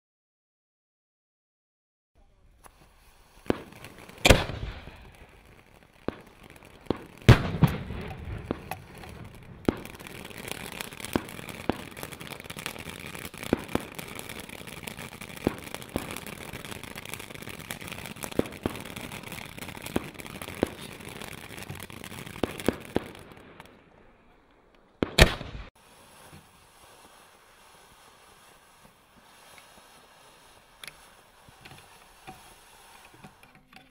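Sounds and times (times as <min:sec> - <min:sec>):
firework hissing sparks: 0:02.2 - 0:24.0, 0:25.0 - 0:33.9
firework crackles and pops: 0:02.2 - 0:33.9.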